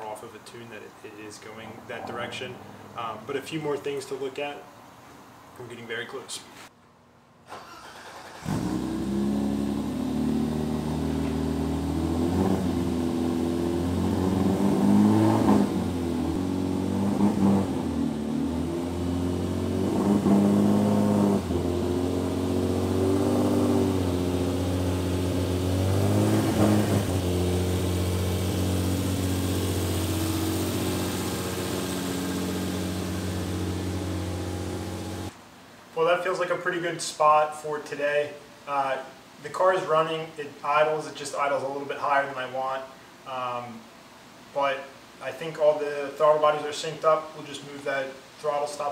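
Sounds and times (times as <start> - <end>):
car engine revving: 7.8 - 35.4.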